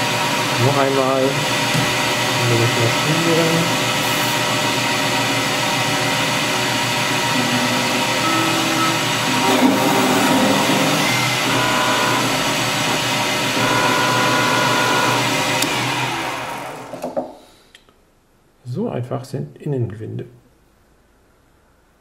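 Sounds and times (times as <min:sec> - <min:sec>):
stepper motor whining: 0:00.0 - 0:17.1
lathe machine hum: 0:00.0 - 0:17.2.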